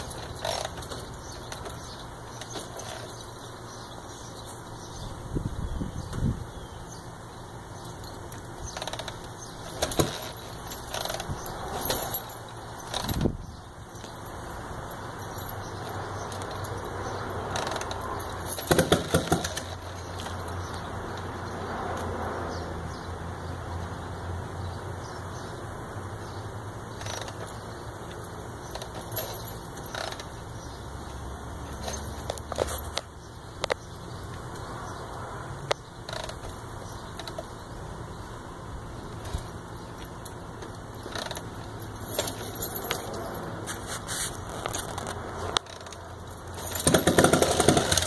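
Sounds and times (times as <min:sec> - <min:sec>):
metallic clanks and rattles: 0:00.0 - 0:05.0, 0:07.8 - 0:21.8, 0:26.9 - 0:30.9, 0:39.1 - 0:48.0
low steady engine hum: 0:00.0 - 0:48.0.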